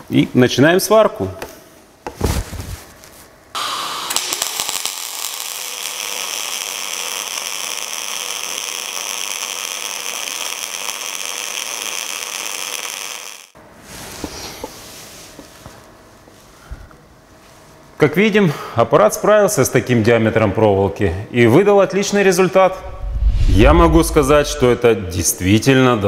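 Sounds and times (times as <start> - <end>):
welding arc crackling: 3.6 - 13.6.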